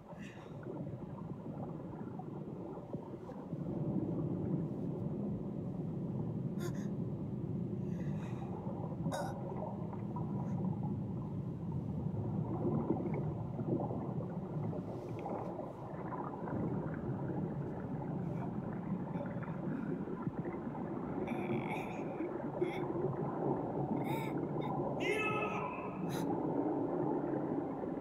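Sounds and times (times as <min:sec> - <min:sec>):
low rumble of churning water: 0:00.0 - 0:28.0.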